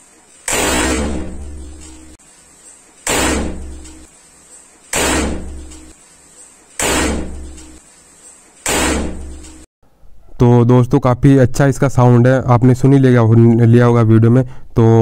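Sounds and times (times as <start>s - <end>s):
bottle gun bangs: 3.1s - 4.0s, 5.0s - 5.9s, 6.8s - 7.8s, 8.7s - 9.5s.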